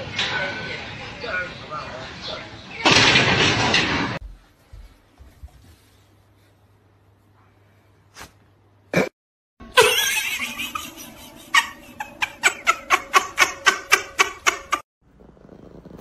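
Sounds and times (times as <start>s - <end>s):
person laughing hard: 9.7s - 14.8s.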